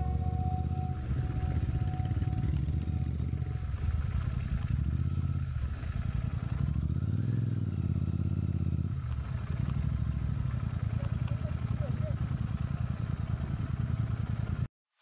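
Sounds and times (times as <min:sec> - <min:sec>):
motorcycle engine running: 0:00.0 - 0:14.7.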